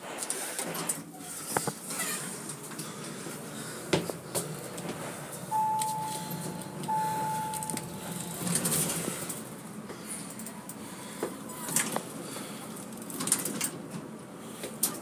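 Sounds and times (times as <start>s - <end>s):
elevator car hum: 1.7s - 15.0s
electronic beeps: 5.5s - 8.0s.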